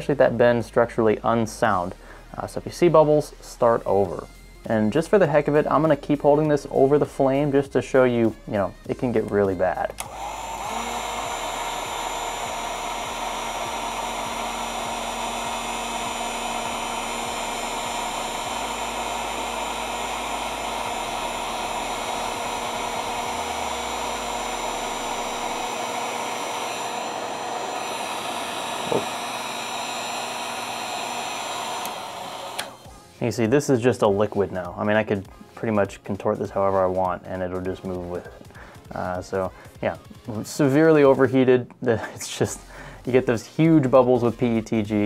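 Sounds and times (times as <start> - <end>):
heat gun blowing air: 5.0 - 33.2.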